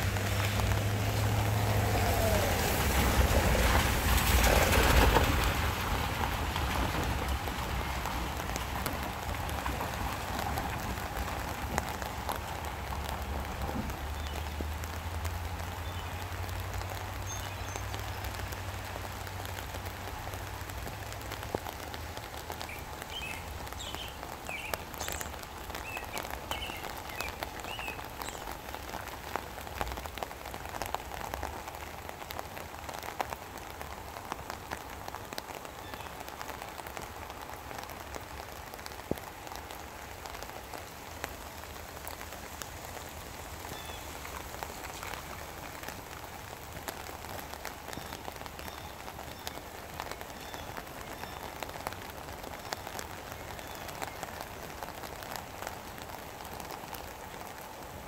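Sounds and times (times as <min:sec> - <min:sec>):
raindrops tapping close by: 0:00.0 - 0:58.0
steady rain: 0:00.0 - 0:58.0.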